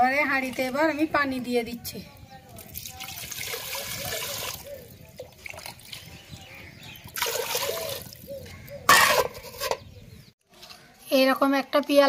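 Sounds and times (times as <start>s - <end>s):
water splashing: 2.6s - 6.4s, 7.0s - 8.3s
water pouring into a pot: 2.8s - 4.6s, 7.2s - 8.1s.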